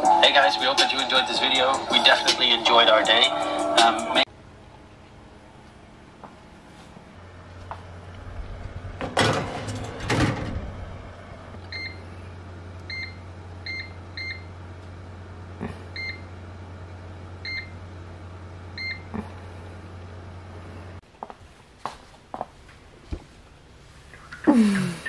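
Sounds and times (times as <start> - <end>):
low oven hum: 0.0 - 25.0
oven door shutting: 8.2 - 11.6
baking pan sliding onto oven rack: 8.3 - 11.5.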